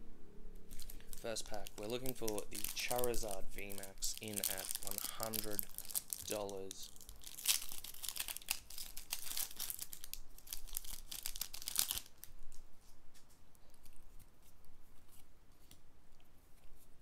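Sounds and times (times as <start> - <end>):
foil wrapper tearing and crinkling: 0.7 - 12.5
cards rustling and clicking: 0.7 - 16.9.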